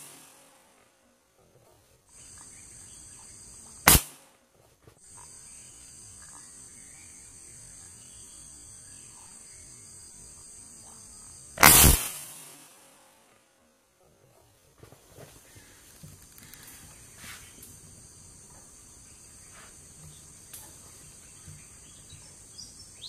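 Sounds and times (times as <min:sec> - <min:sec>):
insects trilling: 0:02.1 - 0:04.0, 0:05.0 - 0:12.8, 0:15.3 - 0:23.0
rifle shots: 0:03.9 - 0:04.2, 0:11.6 - 0:13.0.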